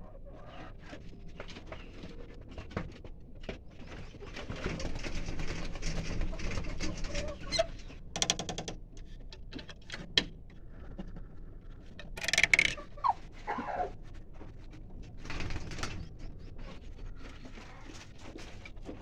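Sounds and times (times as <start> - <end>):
hen low sounds: 10.6 - 14.5.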